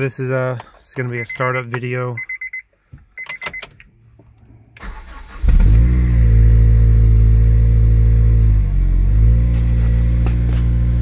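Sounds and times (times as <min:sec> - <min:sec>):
car engine revving and idling: 0:04.9 - 0:11.0.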